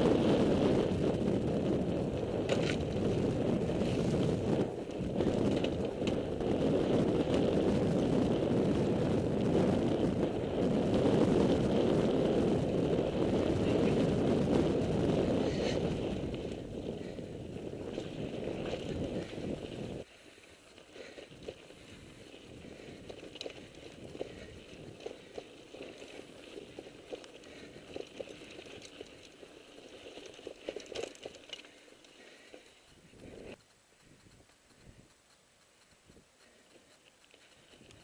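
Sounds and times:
wind rushing on microphone: 0:00.0 - 0:20.1
bike rattling over bumps: 0:00.0 - 0:35.0
tyres running on dirt: 0:00.0 - 0:38.0.

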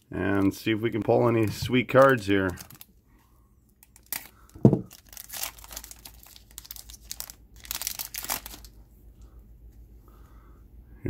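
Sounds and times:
foil wrapper crinkling: 0:00.0 - 0:03.0, 0:03.8 - 0:08.8.

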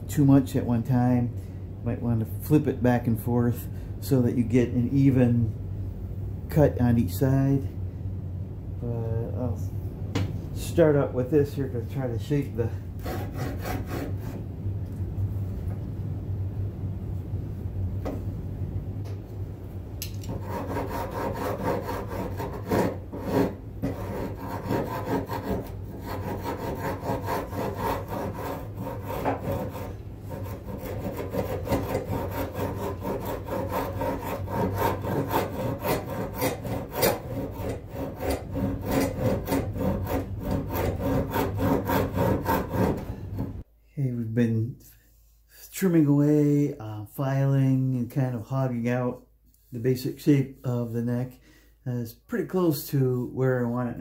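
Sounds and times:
file rasping on wood: 0:13.0 - 0:14.4, 0:20.3 - 0:43.6.

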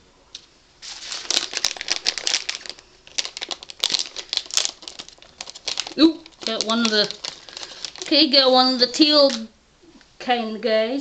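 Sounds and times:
plastic pouch crinkling: 0:00.8 - 0:09.4.

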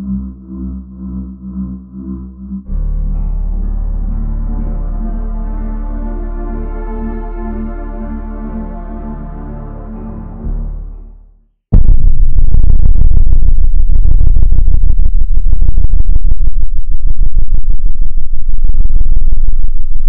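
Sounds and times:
soft ambient music: 0:00.0 - 0:11.4
loud distorted electronic drone: 0:11.8 - 0:20.0.

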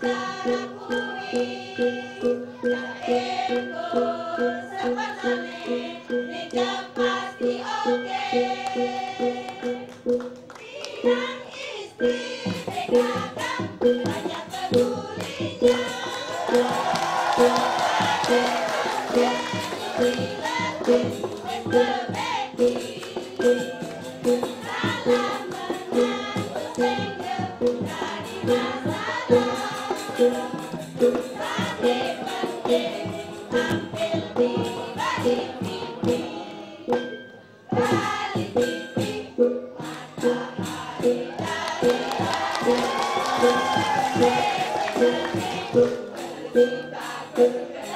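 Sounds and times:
music with a steady beat: 0:12.0 - 0:47.9
women chanting a cheer: 0:14.2 - 0:23.2, 0:40.8 - 0:45.9.

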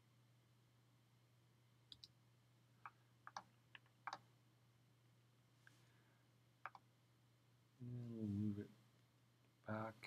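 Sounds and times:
faint steady hum: 0:00.0 - 0:10.0
computer keyboard and mouse clicks: 0:01.9 - 0:02.1, 0:02.8 - 0:04.2, 0:06.6 - 0:06.9.

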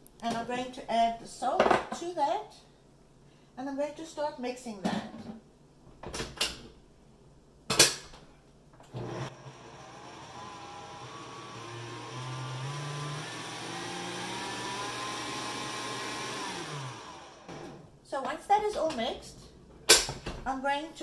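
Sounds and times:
stand mixer motor whining: 0:08.9 - 0:17.8.

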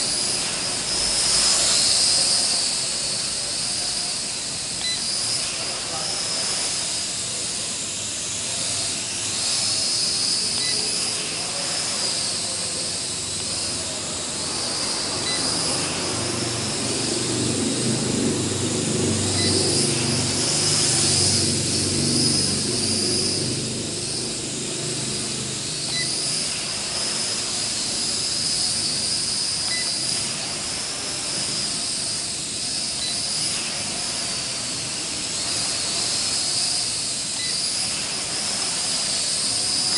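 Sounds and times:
quadcopter propellers buzzing: 0:00.0 - 0:39.9.

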